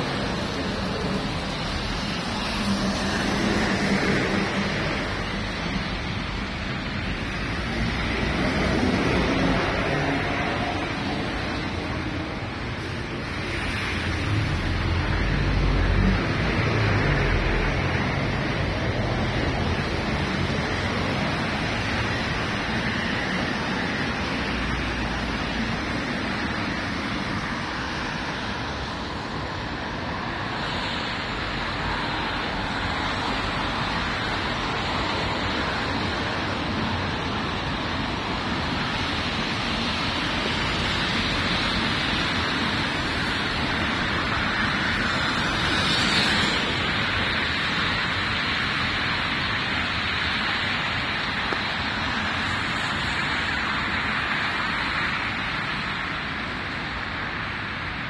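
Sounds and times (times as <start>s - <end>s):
rain hiss: 0.0s - 58.0s
tyres on wet asphalt: 0.0s - 58.0s.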